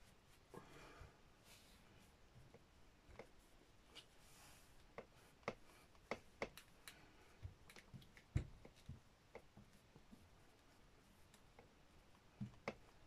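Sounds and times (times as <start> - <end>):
clicks and light taps on fabric: 4.8 - 13.0.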